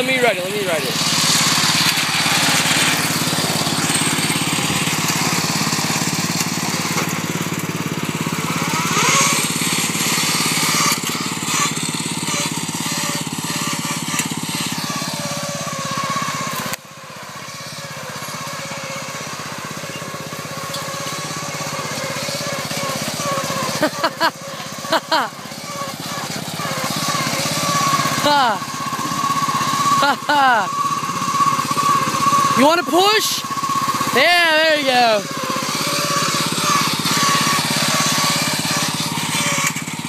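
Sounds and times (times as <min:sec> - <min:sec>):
riding lawn mower engine: 0:00.0 - 0:40.0.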